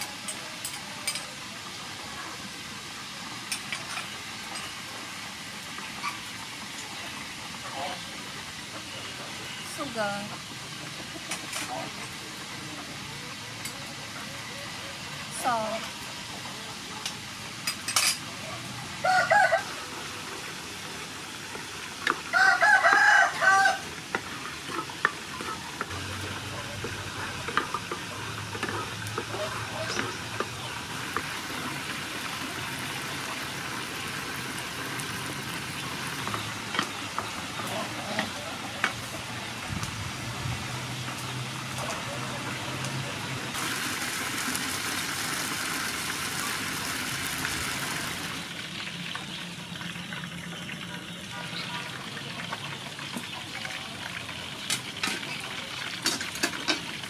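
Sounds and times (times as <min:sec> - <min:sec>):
sauce sizzling in hot oil: 0:00.0 - 0:57.0
rooster crowing: 0:19.0 - 0:20.0, 0:22.3 - 0:23.9.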